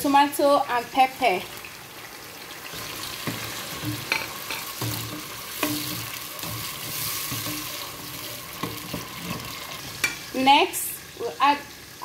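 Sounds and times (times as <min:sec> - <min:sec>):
vegetables sizzling in oil: 0:00.0 - 0:12.0
spoon stirring and knocking pot: 0:03.2 - 0:10.3.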